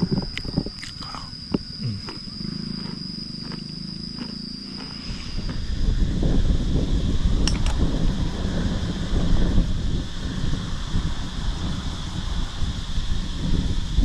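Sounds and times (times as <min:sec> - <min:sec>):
high insect whine: 0:00.0 - 0:14.0
wind buffeting microphone: 0:00.0 - 0:14.0
long low animal call: 0:01.0 - 0:04.0.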